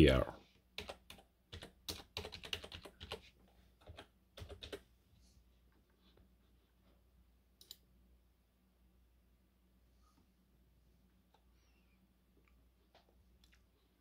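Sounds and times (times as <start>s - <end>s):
computer keyboard keys clicking: 0.8s - 3.2s, 3.8s - 4.8s.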